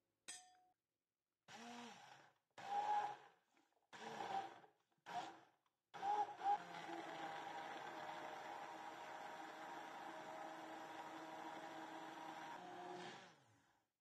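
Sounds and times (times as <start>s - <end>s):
immersion blender running: 1.5s - 3.3s, 3.9s - 5.4s, 6.0s - 13.7s.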